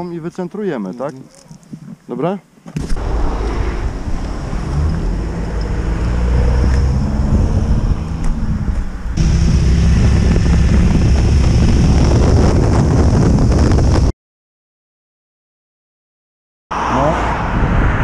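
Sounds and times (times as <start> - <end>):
low engine hum: 2.8 - 14.1
wind buffeting microphone: 2.8 - 14.1, 17.3 - 18.0
quad bike engine running: 9.2 - 12.5.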